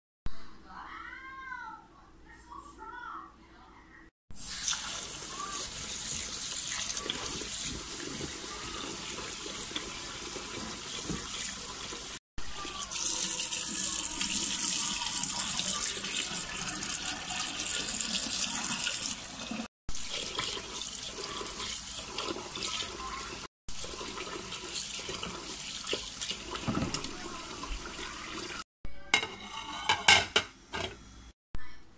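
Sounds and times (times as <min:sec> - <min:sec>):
tap water running into bowl: 0:04.4 - 0:28.6.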